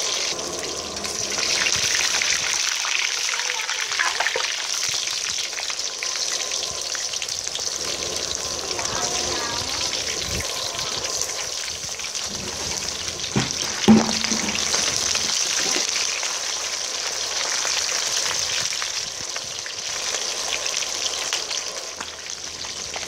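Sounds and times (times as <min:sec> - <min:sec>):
fish sizzling in hot oil: 0:00.0 - 0:23.0
metal spatula knocking on pan: 0:13.4 - 0:15.3.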